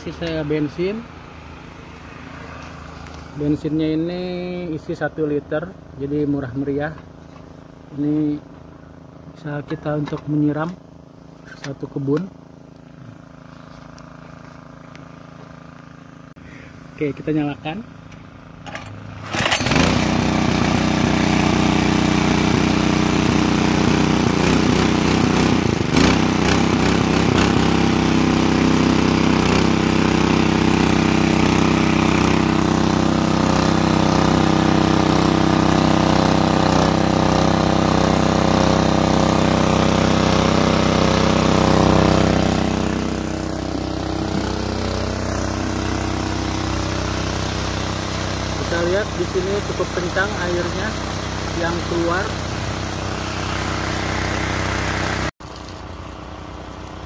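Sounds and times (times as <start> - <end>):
small petrol engine running: 17.8 - 57.0.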